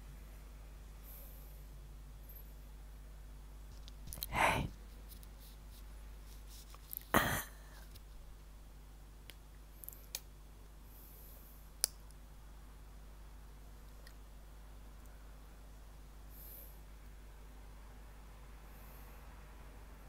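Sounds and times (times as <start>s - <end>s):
breathy puffs of breath: 4.3s - 4.7s.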